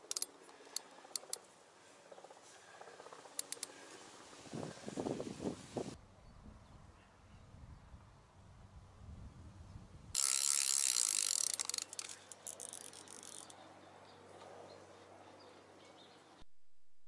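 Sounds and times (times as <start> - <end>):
reel clicks and rattles: 0.0 - 1.4, 3.3 - 3.7, 10.1 - 13.6
fishing reel whirring: 0.1 - 1.4, 10.1 - 13.6.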